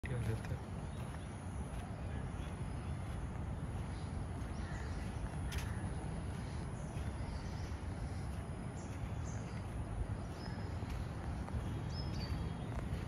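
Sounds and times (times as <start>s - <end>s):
birds chirping: 0.0s - 13.0s
steady low rumble: 0.0s - 13.0s.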